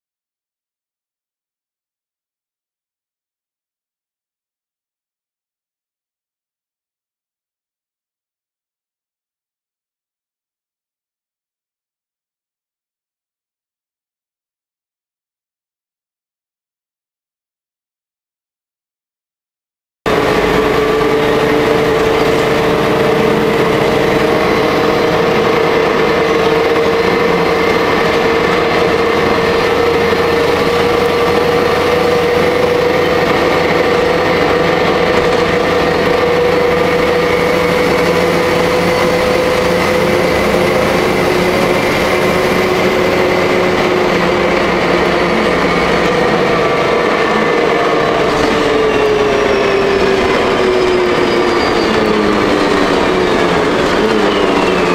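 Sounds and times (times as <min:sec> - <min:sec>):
bus engine and drivetrain noise: 0:20.1 - 0:54.9
high whine: 0:20.1 - 0:54.9.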